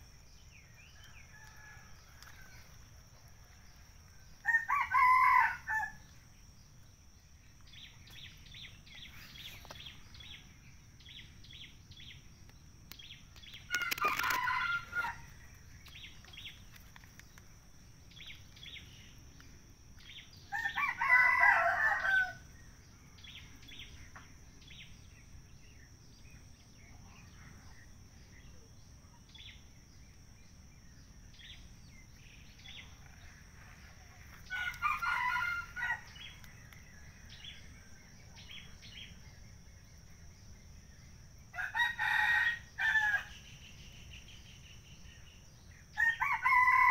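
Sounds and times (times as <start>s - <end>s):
rooster crowing: 4.4s - 6.0s, 13.7s - 15.3s, 20.5s - 22.4s, 34.4s - 36.3s, 41.5s - 43.4s, 46.0s - 46.9s.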